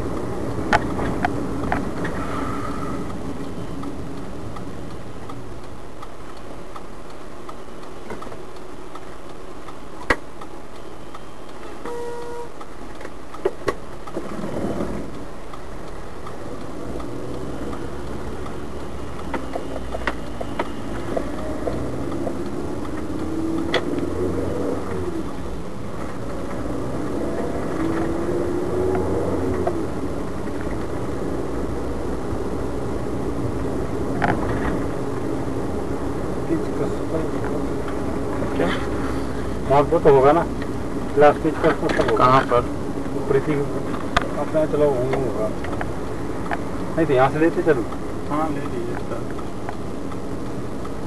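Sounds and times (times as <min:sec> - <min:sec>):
car engine and road rumble: 0:00.0 - 0:51.0
short beep: 0:11.6 - 0:12.6
sharp clicks: 0:15.1 - 0:24.1.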